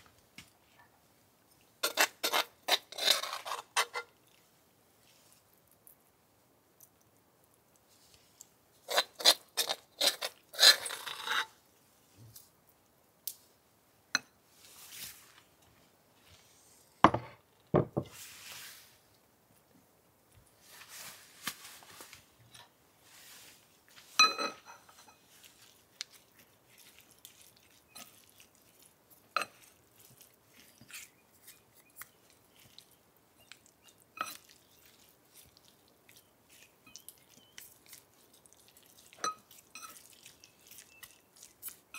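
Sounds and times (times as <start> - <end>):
soft stirring: 0.4 - 6.1, 6.7 - 12.6, 20.3 - 41.9
utensils clinking on ceramic bowl: 24.2 - 25.3, 29.4 - 29.7, 34.2 - 34.5, 39.1 - 41.2.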